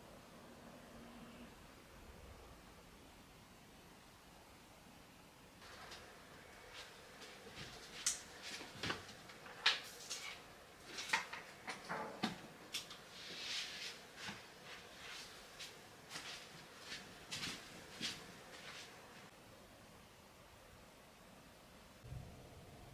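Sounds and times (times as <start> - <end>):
soft rustle: 13.0 - 19.4.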